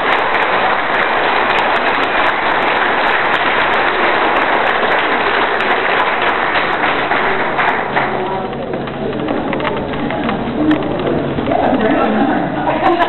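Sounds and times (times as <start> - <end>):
audience applauding: 0.0 - 9.6.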